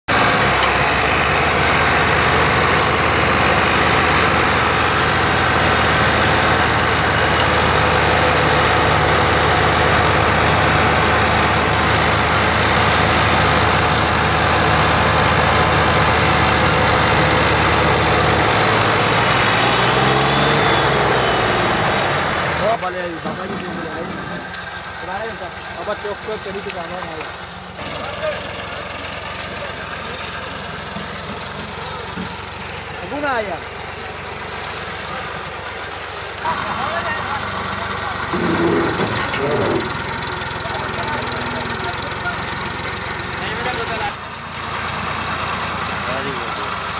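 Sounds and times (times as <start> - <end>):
tractor engine under heavy load: 0.0 - 46.9.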